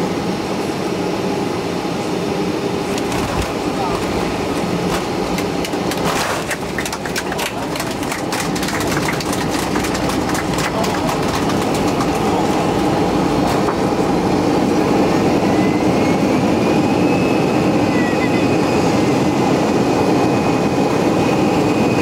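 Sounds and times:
airplane engine and air noise: 0.0s - 22.0s
rapid rattling and clattering: 2.9s - 12.6s.

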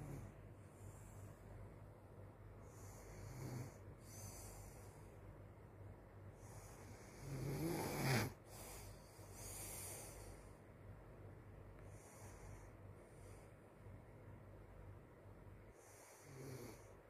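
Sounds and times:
child snoring: 2.8s - 4.5s, 6.6s - 8.4s, 16.0s - 16.9s.

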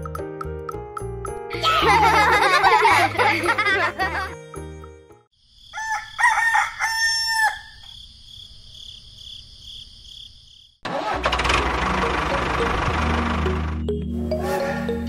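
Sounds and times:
rooster crowing: 5.7s - 7.9s
loud engine noise: 10.9s - 13.9s.

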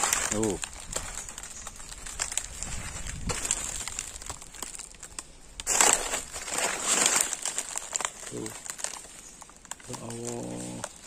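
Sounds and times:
footsteps crunching through dry leaves: 0.0s - 11.0s.

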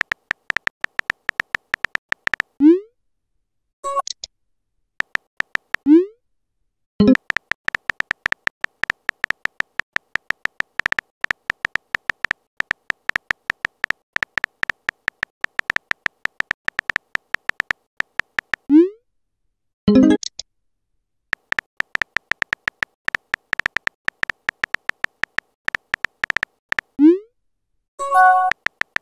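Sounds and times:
keyboard typing clicks: 0.0s - 2.6s, 5.0s - 5.9s, 7.0s - 18.7s, 21.3s - 26.9s, 28.0s - 29.0s
message pop: 0.0s - 2.6s, 7.0s - 18.7s, 21.4s - 26.9s, 28.0s - 29.0s.

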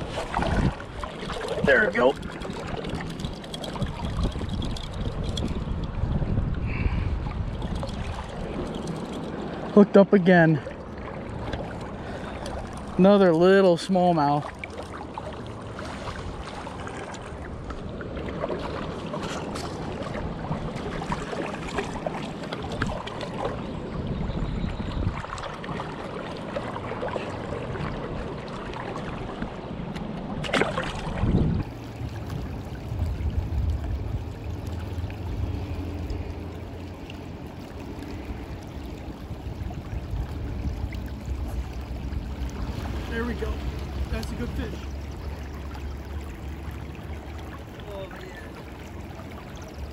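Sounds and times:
river current rushing: 30.4s - 49.9s.

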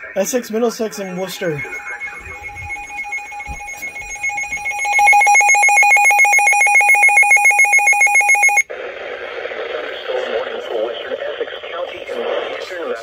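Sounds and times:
radio broadcast audio: 0.0s - 5.5s, 8.8s - 13.0s
pulsing two-tone alarm beep: 0.8s - 8.6s.

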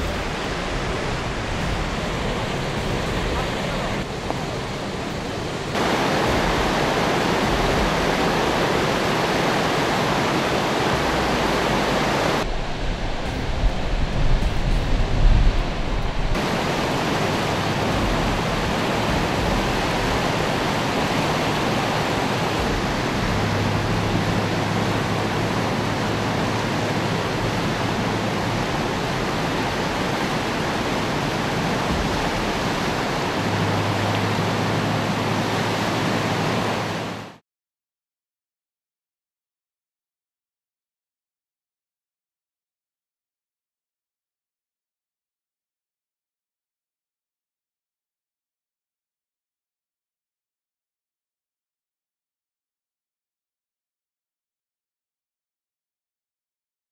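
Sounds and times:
low thumps: 0.0s - 10.2s, 10.8s - 29.6s, 31.6s - 35.1s
muddy water rushing and churning: 0.0s - 37.4s.

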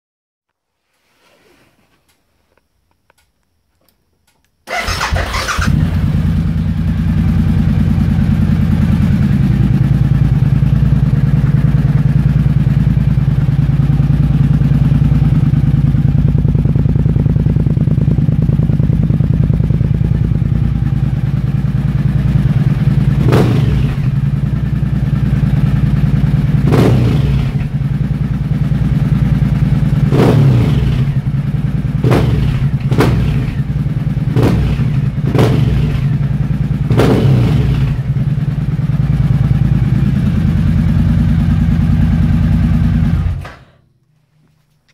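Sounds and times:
motorcycle engine starting: 4.6s - 43.8s
engine revving: 4.7s - 16.0s, 16.6s - 24.5s, 25.4s - 28.3s, 29.8s - 38.5s
motorcycle engine idling: 4.7s - 43.4s.

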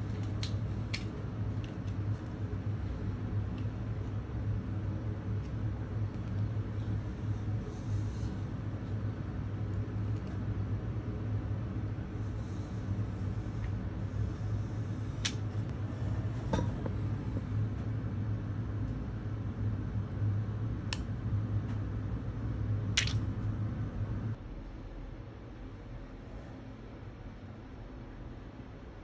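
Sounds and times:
low background hum: 0.0s - 29.0s.

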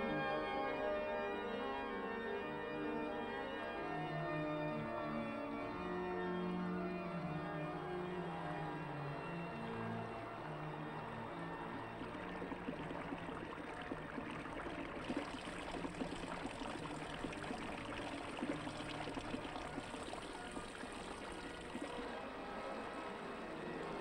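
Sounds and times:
water trickling and splashing: 10.4s - 22.3s.

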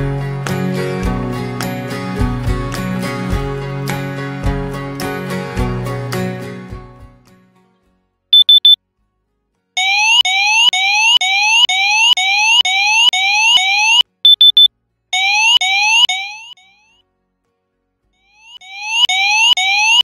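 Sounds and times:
quick high beeps: 8.4s - 8.8s, 9.8s - 16.8s, 18.3s - 20.0s
rising-pitch alarm whoop: 9.8s - 14.0s, 18.4s - 20.0s.

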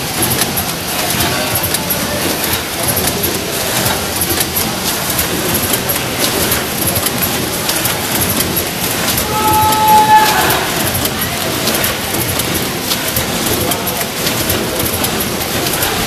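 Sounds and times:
packing machine clatter: 0.0s - 16.0s.

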